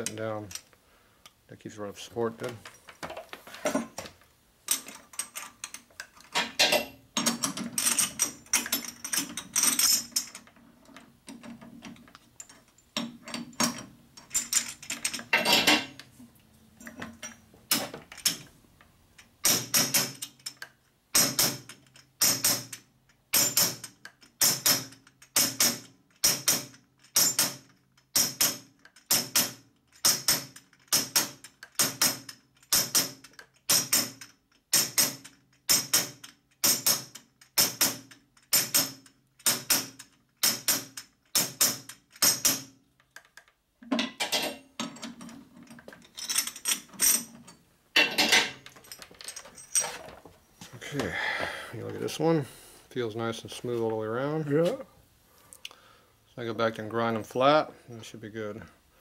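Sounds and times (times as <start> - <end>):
metal clinks and clatter: 4.7 - 16.0, 44.0 - 50.2.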